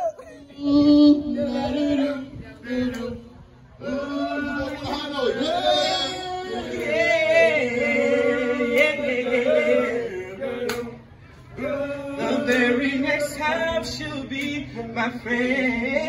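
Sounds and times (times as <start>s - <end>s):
man singing through speaker: 0.0s - 16.0s.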